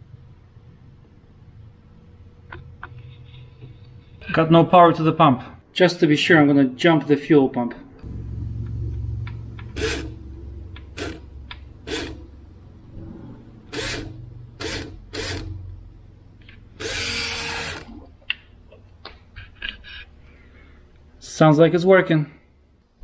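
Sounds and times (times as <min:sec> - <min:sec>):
electric fuel pump humming: 0:08.0 - 0:12.9, 0:13.5 - 0:18.8.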